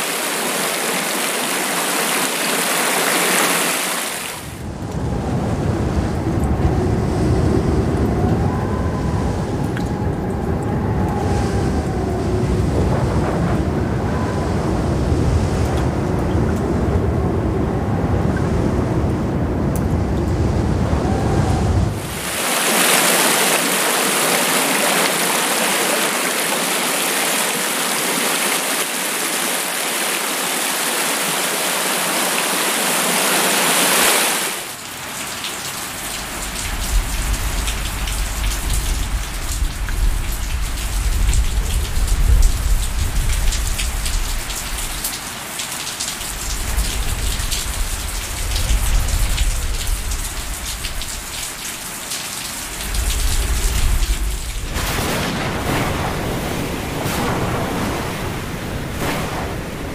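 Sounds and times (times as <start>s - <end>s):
waterfall rushing: 0.0s - 4.6s, 21.0s - 39.5s
rain falling on leaves: 0.0s - 14.5s, 20.9s - 59.8s
low rumbling: 4.6s - 22.4s, 52.7s - 59.9s.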